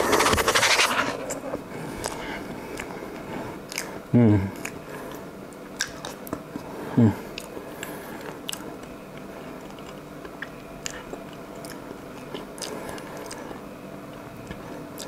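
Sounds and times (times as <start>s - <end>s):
person chewing: 1.9s - 3.0s, 3.7s - 5.2s, 5.8s - 15.0s.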